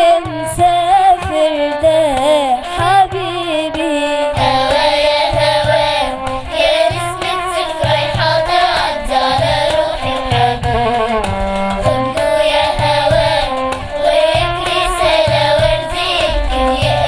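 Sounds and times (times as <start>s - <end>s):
girls singing: 0.0s - 10.8s, 11.8s - 17.0s
music with regular drum beat: 4.4s - 17.0s.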